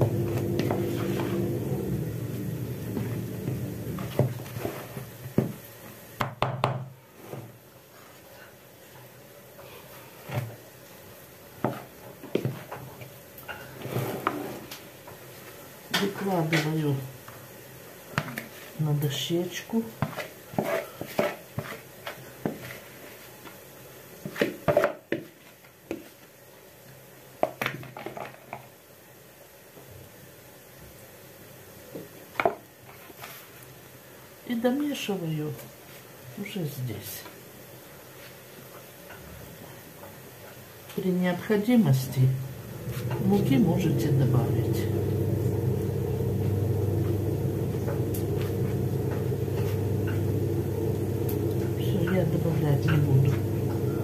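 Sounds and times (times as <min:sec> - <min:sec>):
low rumble: 0:00.0 - 0:04.5, 0:42.4 - 0:54.0.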